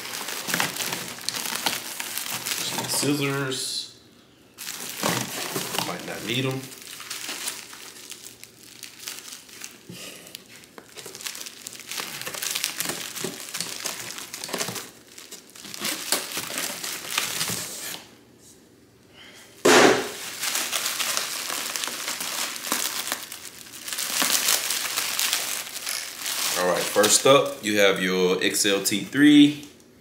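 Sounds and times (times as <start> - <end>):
plastic bags crinkling: 0.0 - 3.5, 4.6 - 18.1, 20.1 - 27.4
loud thump: 19.7 - 20.2.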